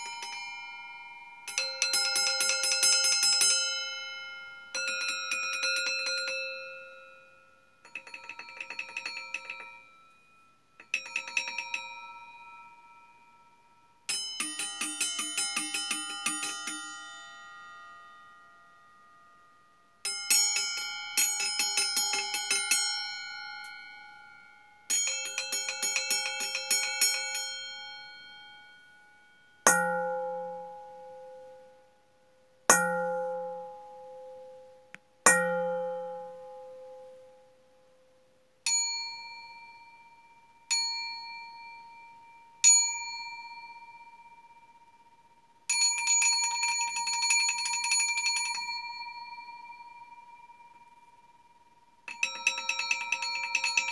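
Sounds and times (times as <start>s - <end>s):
steel bowls ringing: 0.0s - 31.8s, 32.7s - 37.4s, 38.7s - 53.9s
quick repeated tapping on bowls: 7.9s - 9.9s, 52.1s - 53.9s.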